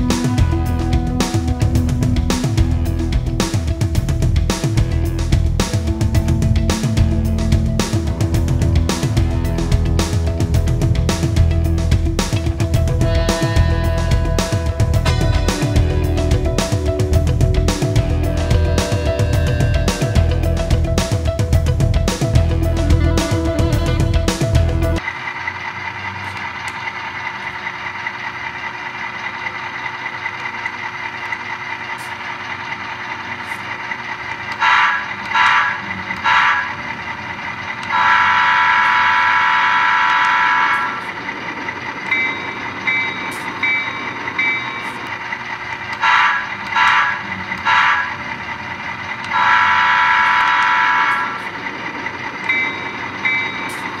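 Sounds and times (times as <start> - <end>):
diesel engine sound effect: 0.0 - 54.0
locomotive horn toots and blasts: 12.9 - 16.3, 17.7 - 21.1, 22.6 - 25.0, 34.6 - 36.9, 37.8 - 41.2, 46.0 - 48.3, 49.3 - 51.6
ringing locomotive bell: 37.9 - 48.6, 49.3 - 54.0.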